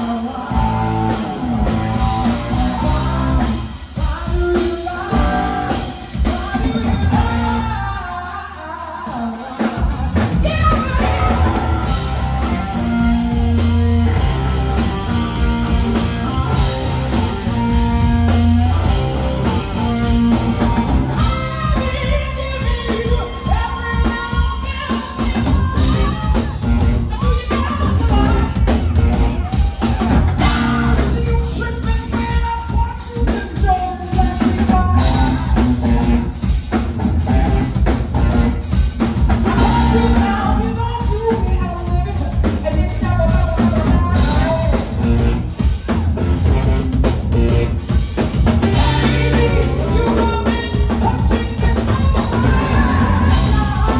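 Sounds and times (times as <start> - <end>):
electric bass: 0.0 - 8.1, 9.9 - 32.6, 33.6 - 53.9
woman singing: 0.0 - 14.2, 20.0 - 36.4, 38.3 - 45.3, 48.6 - 53.9
drum kit: 0.0 - 53.9
electric guitar: 0.0 - 53.9.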